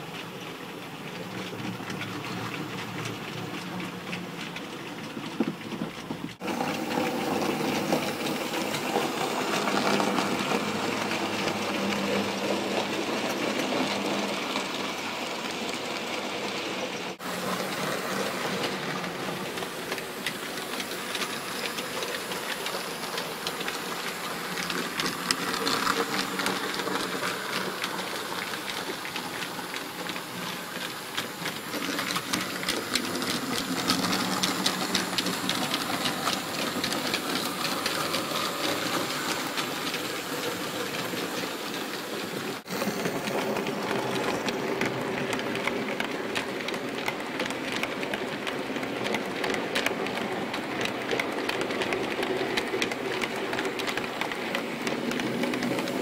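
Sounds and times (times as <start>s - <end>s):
wheels clicking over rail joints: 0.0s - 56.0s
model train motor whirring: 16.4s - 56.0s.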